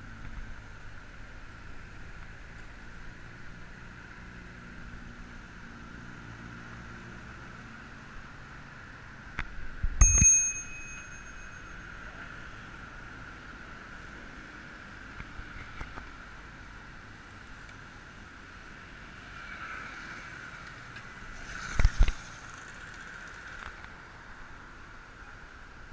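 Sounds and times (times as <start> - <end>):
bicycle ride noise: 7.8 - 25.0
bicycle bell ding: 10.0 - 12.3.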